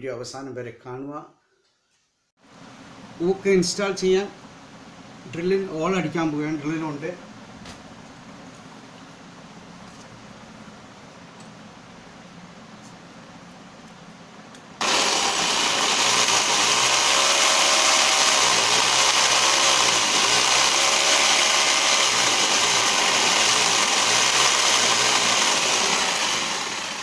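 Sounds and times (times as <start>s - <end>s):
electric drill boring into wall: 14.8s - 27.0s.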